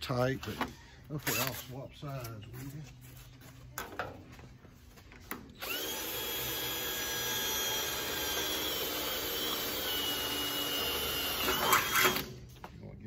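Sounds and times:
power drill whining: 0:00.6 - 0:01.7, 0:05.6 - 0:12.5.

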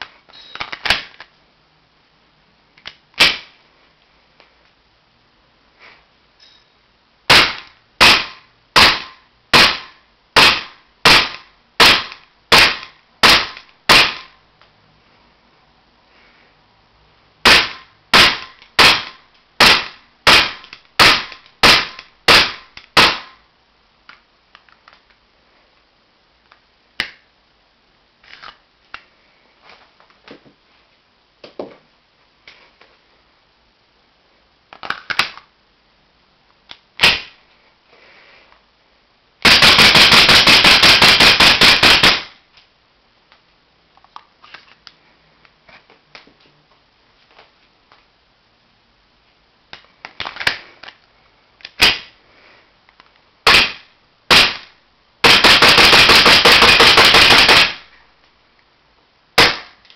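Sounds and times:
airsoft pistol shots: 0:07.3 - 0:14.4, 0:17.4 - 0:23.4, 0:37.0 - 0:37.4, 0:39.4 - 0:42.4, 0:53.5 - 0:57.9, 0:59.4 - 0:59.8.

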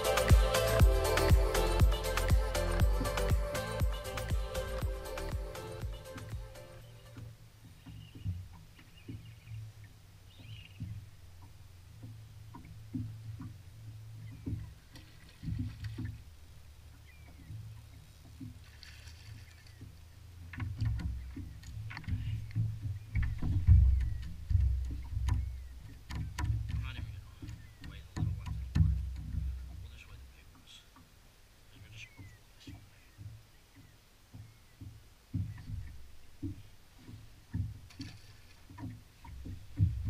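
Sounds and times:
wind and water against boat hull: 0:00.0 - 0:40.0
fish splashing beside boat: 0:10.3 - 0:31.1, 0:32.0 - 0:40.0.

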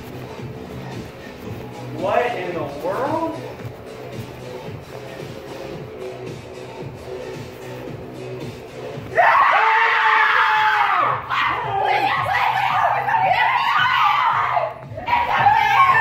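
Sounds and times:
person screaming in fright: 0:09.2 - 0:11.9.

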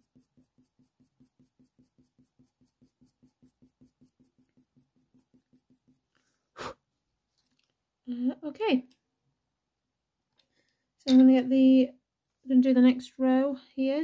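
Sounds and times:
pencil strokes on paper: 0:00.0 - 0:06.5.

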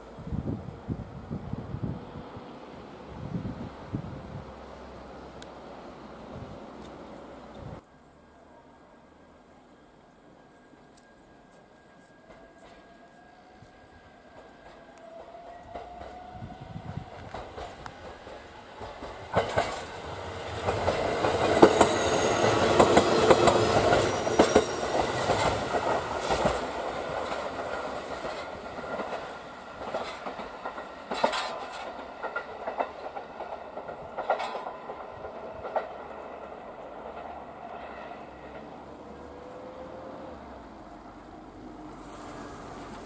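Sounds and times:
electric train running past: 0:00.0 - 0:43.0
wheels clicking over rail joints: 0:14.4 - 0:39.8.

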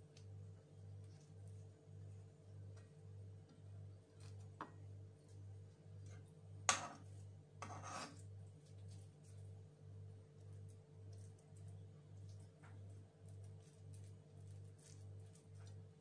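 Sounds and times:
leaf rubbing on plate: 0:06.8 - 0:09.6, 0:13.2 - 0:16.0.

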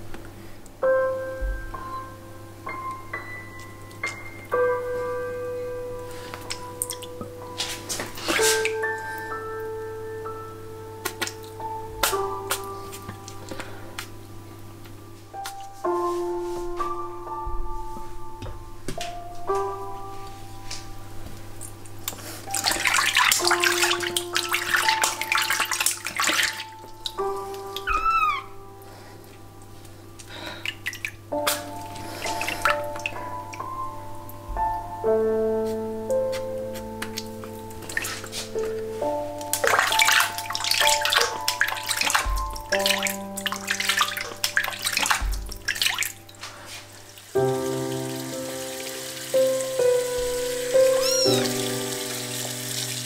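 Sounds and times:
soft background music: 0:00.0 - 0:53.0
water splashing in a sink: 0:06.4 - 0:09.2, 0:22.4 - 0:28.4, 0:30.2 - 0:33.6, 0:37.0 - 0:38.8, 0:39.4 - 0:53.0.

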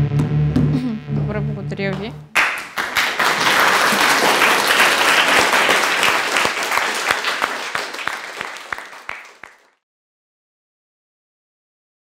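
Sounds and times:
audience applauding: 0:02.3 - 0:09.8.

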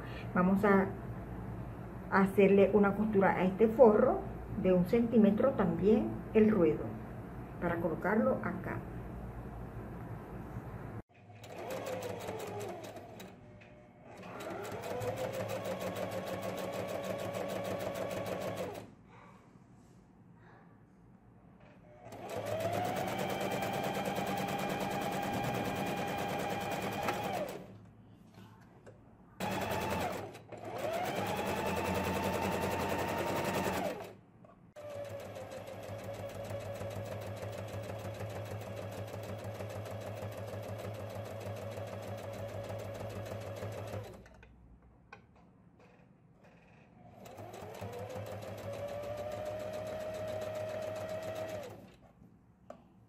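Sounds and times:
sewing machine stitching: 0:11.2 - 0:13.4, 0:14.1 - 0:18.9, 0:22.0 - 0:27.8, 0:29.4 - 0:34.2, 0:34.8 - 0:44.4, 0:46.4 - 0:52.0.

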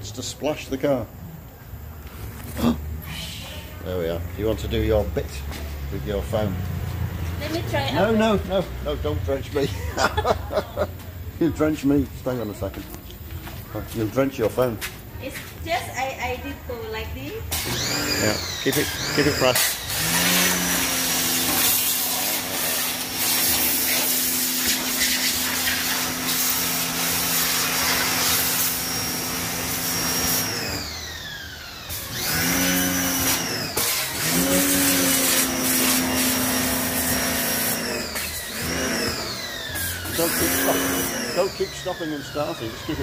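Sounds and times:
water jet hissing: 0:17.5 - 0:30.5, 0:33.8 - 0:38.5
pressure washer motor hum: 0:17.5 - 0:43.0.

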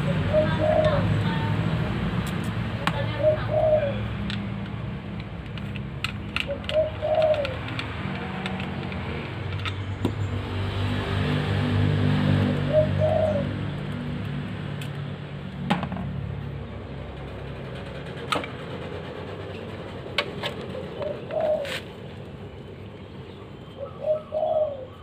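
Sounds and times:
bird cooing: 0:00.0 - 0:01.6, 0:02.9 - 0:04.2, 0:06.4 - 0:08.5, 0:12.2 - 0:13.6, 0:20.6 - 0:22.0, 0:23.3 - 0:25.0
small metal parts clicking: 0:04.3 - 0:09.9.

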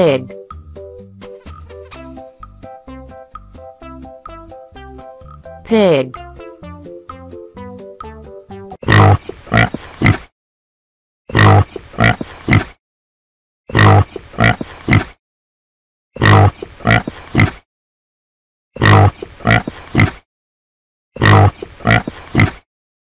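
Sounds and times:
pig grunting: 0:08.8 - 0:10.3, 0:11.3 - 0:12.8, 0:13.7 - 0:15.2, 0:16.2 - 0:17.6, 0:18.8 - 0:20.2, 0:21.2 - 0:22.6.

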